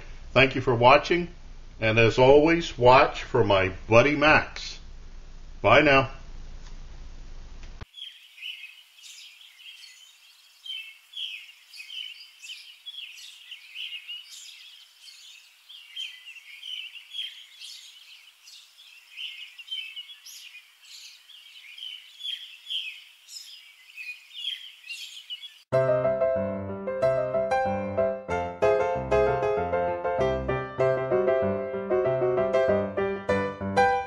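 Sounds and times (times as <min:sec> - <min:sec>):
small birds chirping: 0:07.8 - 0:25.7.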